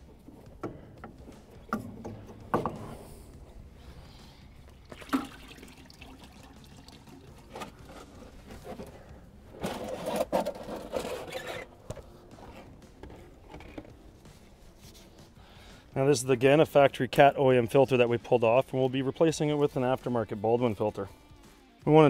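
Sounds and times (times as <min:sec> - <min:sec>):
filter clicks and knocks: 0:00.0 - 0:03.0
oil pouring into a pan: 0:04.8 - 0:07.4.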